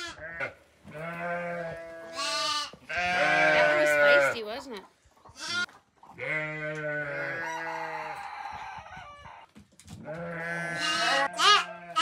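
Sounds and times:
sheep bleating: 0.0 - 4.4, 5.4 - 7.7, 10.0 - 12.0.

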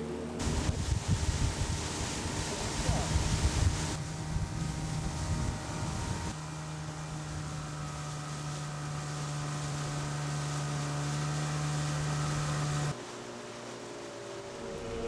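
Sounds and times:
jet ski engine droning: 0.0 - 15.0
wind buffeting microphone: 0.4 - 6.4.

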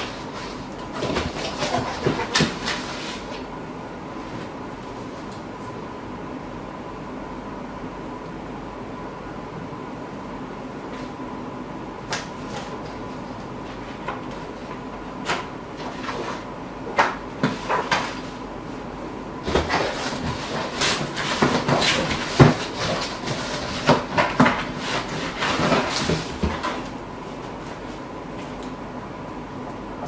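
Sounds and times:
paper and cardboard rustling: 0.0 - 3.5, 19.4 - 28.6
faint steady hum: 0.0 - 30.0.

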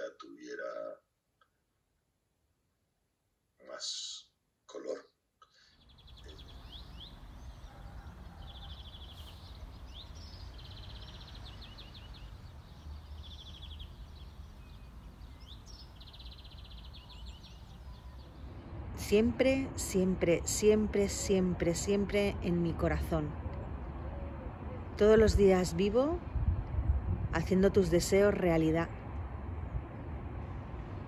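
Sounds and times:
bird chirps: 5.5 - 18.4
steady low rumble: 24.9 - 31.0.

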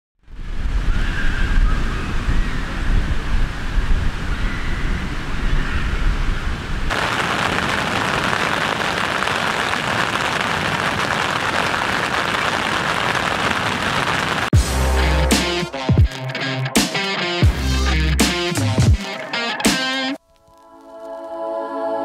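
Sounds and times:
wind rumble on microphone: 0.2 - 14.5
rain on tent fabric: 6.9 - 14.6, 20.2 - 21.4.

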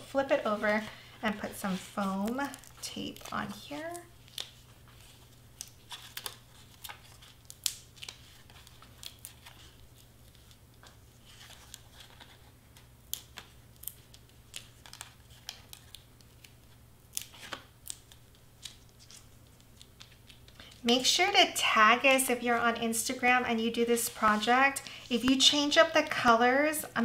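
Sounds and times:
tape backing peeling: 1.4 - 20.5.

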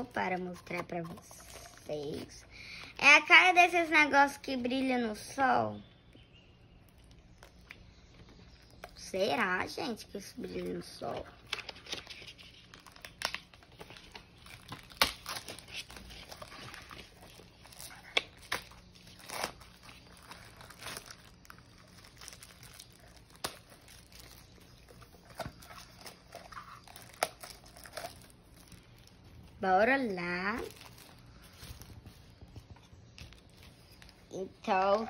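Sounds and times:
plastic bag crinkling: 6.9 - 34.4.

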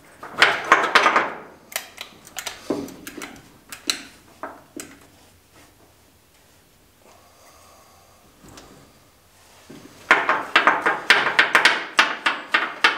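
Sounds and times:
sharp clicks and light knocks: 0.2 - 5.1.

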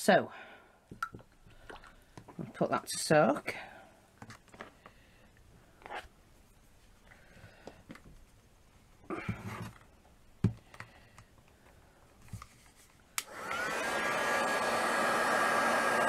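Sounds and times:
hot-air dryer blowing: 13.2 - 16.0.

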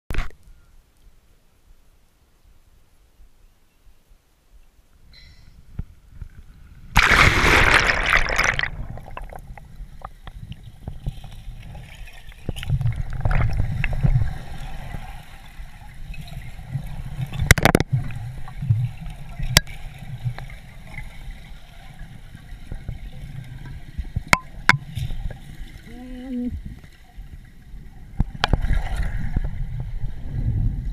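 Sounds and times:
camera splashing into water: 7.0 - 9.4.

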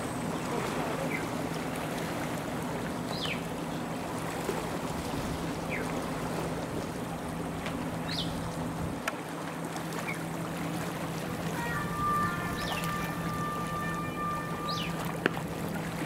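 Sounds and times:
low hum: 10.4 - 16.0
bird chirps: 11.6 - 15.2.

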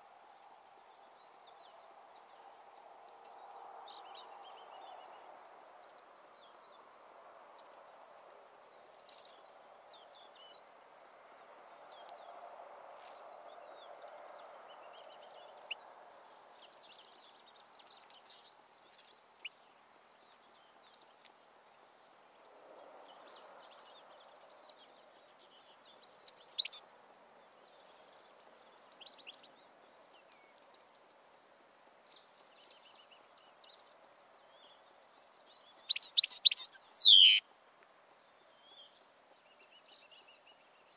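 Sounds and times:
faint background noise: 0.0 - 40.9
bird chirping: 23.1 - 26.9, 27.6 - 37.5.

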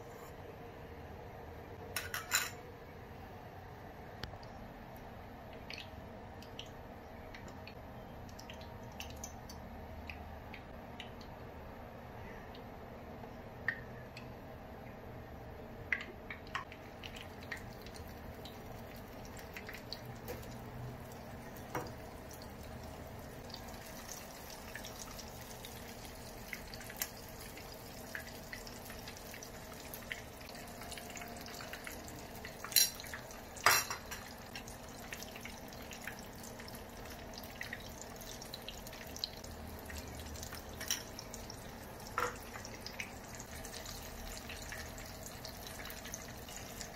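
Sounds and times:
food sizzling in hot oil: 17.2 - 46.9.

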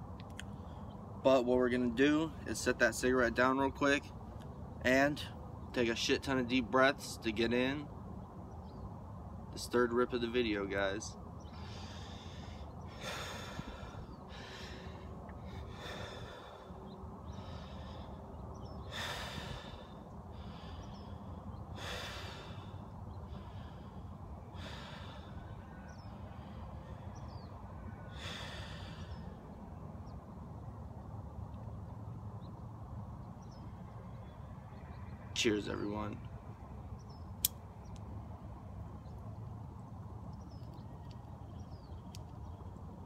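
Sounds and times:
man breathing deeply: 11.5 - 29.6.

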